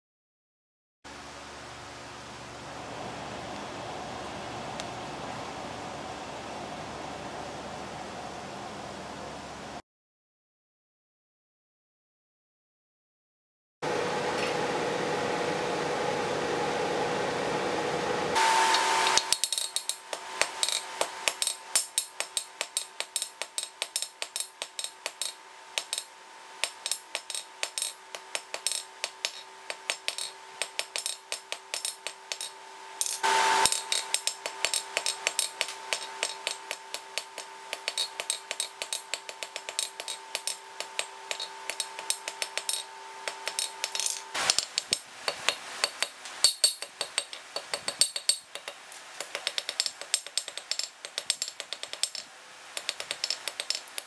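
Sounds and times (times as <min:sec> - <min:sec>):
hammer striking hot steel: 0:18.4 - 0:52.2, 0:52.8 - 0:54.0
anvil ringing: 0:19.1 - 0:48.8.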